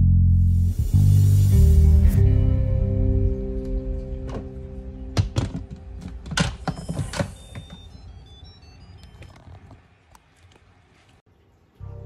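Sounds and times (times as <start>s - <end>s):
tinkling electronic jingle: 6.6s - 9.2s.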